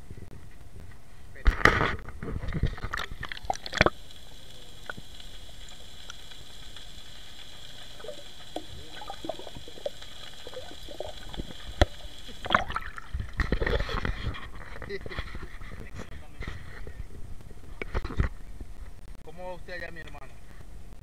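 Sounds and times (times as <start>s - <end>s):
muffled underwater hiss: 0.0s - 20.8s
faint gurgles: 1.4s - 18.6s
small clicks: 2.7s - 12.4s.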